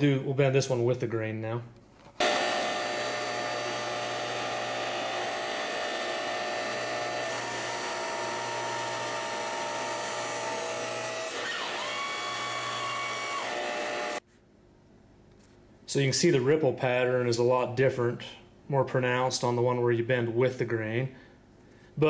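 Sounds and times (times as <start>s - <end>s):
low machine hum: 2.2s - 11.1s.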